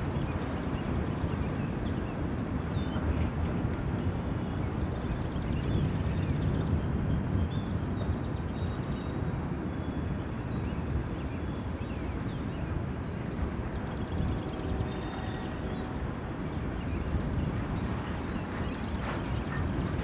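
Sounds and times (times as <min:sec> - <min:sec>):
freight train wheels rumbling: 0:13.9 - 0:20.0.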